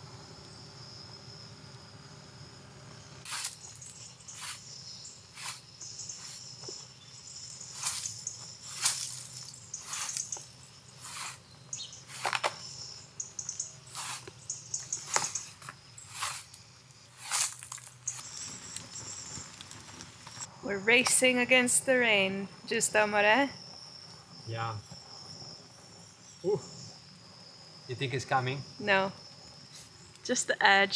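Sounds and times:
crickets chirring: 0.0 - 30.9
broom scratching on roof: 3.3 - 4.7, 5.3 - 6.4, 7.7 - 10.4, 11.0 - 11.4, 13.9 - 14.3, 16.1 - 16.6.

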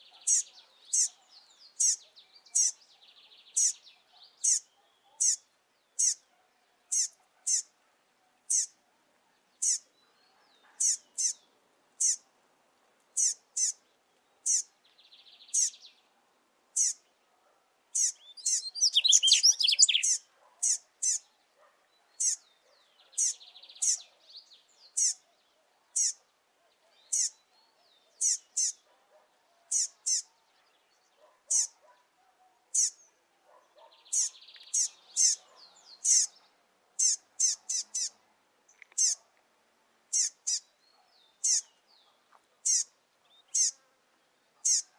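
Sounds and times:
fledgling bird calling: 1.8 - 2.8, 4.4 - 5.4, 6.0 - 6.3, 6.9 - 7.7, 8.5 - 8.8, 9.6 - 9.9, 10.8 - 11.4, 12.0 - 12.2, 13.2 - 13.8, 16.8 - 17.0, 18.0 - 21.2, 25.0 - 25.2, 28.2 - 28.8, 31.5 - 31.8, 33.8 - 36.4, 37.0 - 38.2, 39.0 - 39.2, 40.1 - 40.7, 41.4 - 41.7, 42.6 - 43.8, 44.6 - 44.9
bird twittering: 6.0 - 6.2, 18.0 - 21.2, 31.5 - 31.8, 33.8 - 36.4, 37.0 - 38.2, 40.1 - 40.7, 42.6 - 43.8.

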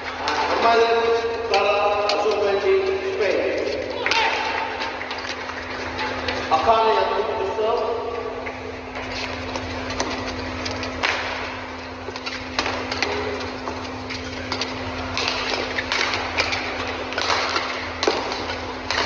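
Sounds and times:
arena background hum: 0.0 - 19.0
racket striking shuttlecock: 10.9 - 11.6, 12.2 - 19.0.

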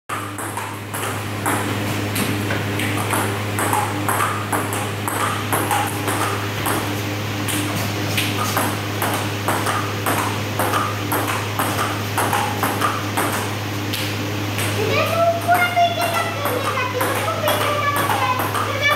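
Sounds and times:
table tennis ball clicks: 15.5 - 18.7.

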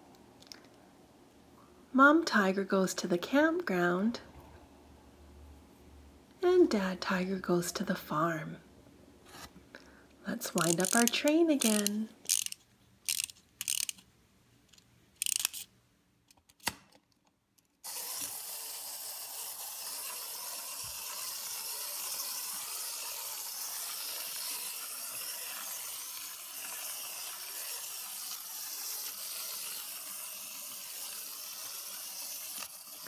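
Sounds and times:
toy train motor whirring: 10.4 - 14.0, 14.7 - 15.7, 17.8 - 33.0
ratchet clicks of winding toy: 10.5 - 14.0, 15.2 - 15.7, 17.8 - 33.0.

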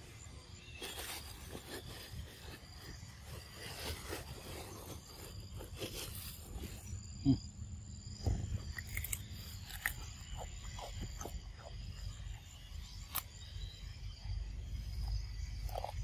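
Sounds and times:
low thump: 8.2 - 8.7
monkey crunching cucumber: 8.6 - 13.4, 15.0 - 16.0.

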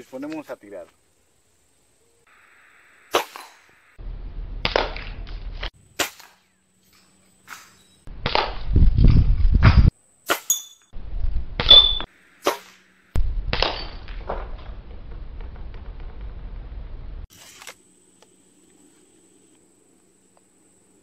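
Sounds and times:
rumbling noise: 4.0 - 5.7, 13.2 - 17.3
short ringing ping: 11.7 - 12.0.

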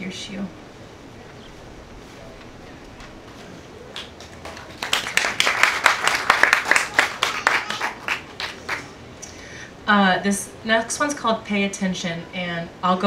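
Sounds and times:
small audience applauding: 3.7 - 9.0.

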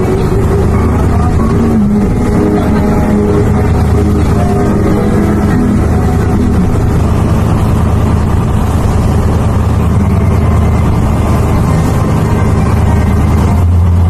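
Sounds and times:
boat engine humming: 0.0 - 14.0
wind and sea rushing: 0.0 - 14.0.

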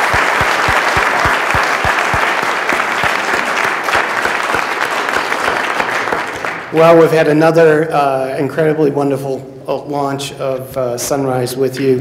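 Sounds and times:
close single person clapping: 0.0 - 6.7
audience applauding: 0.0 - 6.8.

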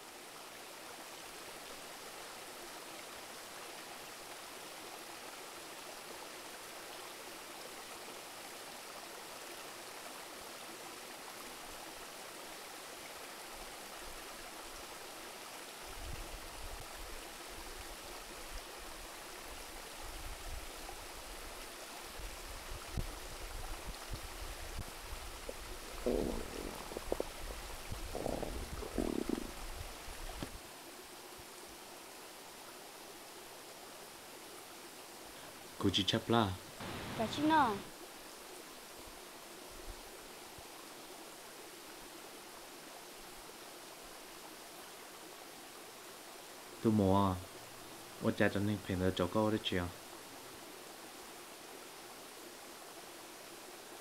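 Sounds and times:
river running over rocks: 0.0 - 54.0.

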